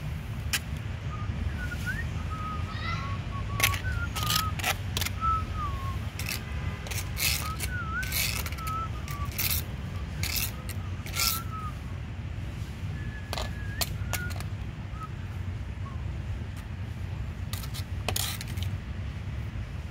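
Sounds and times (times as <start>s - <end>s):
steady low rumble: 0.0s - 19.9s
small bird warbling whistles: 1.1s - 6.4s, 7.2s - 11.9s, 13.0s - 16.1s.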